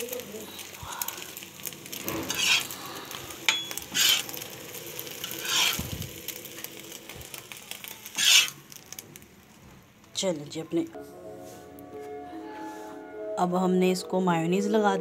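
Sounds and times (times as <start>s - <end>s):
faint sizzle: 0.0s - 14.9s
spatula scraping griddle pan: 1.9s - 6.7s, 7.3s - 8.6s.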